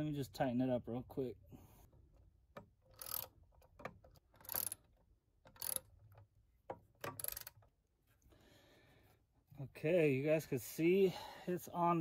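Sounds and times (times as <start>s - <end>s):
hand driver clicking and rasping: 1.9s - 7.8s.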